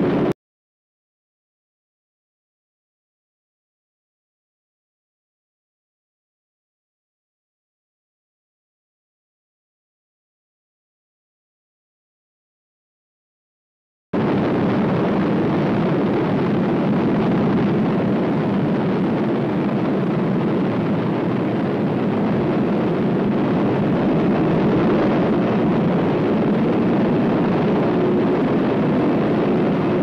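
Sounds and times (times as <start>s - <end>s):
rumbling roar of nuclear explosion: 14.2s - 30.0s.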